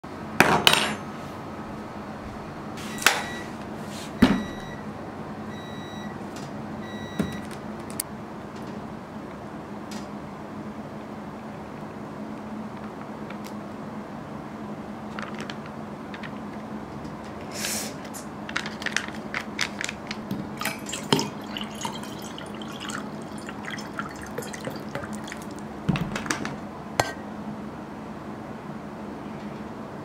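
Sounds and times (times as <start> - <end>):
water pouring into steel tumbler: 20.6 - 25.6.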